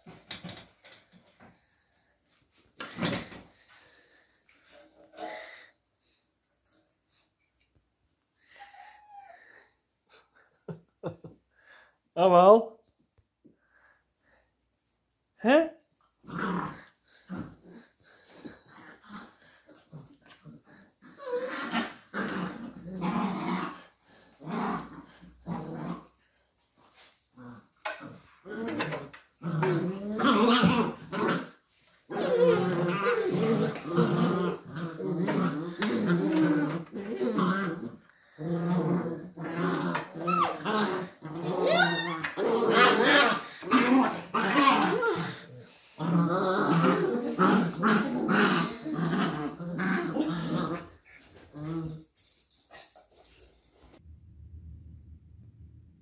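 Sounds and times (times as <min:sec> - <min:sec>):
puppies growling: 0:16.2 - 0:52.1.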